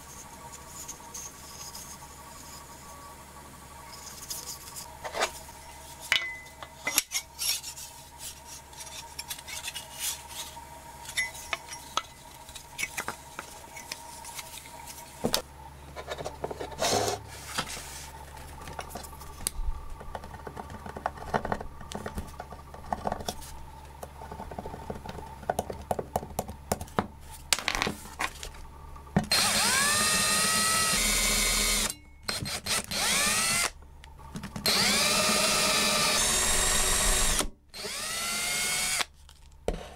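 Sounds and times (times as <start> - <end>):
cordless drill whining: 29.3 - 33.7, 34.6 - 39.1.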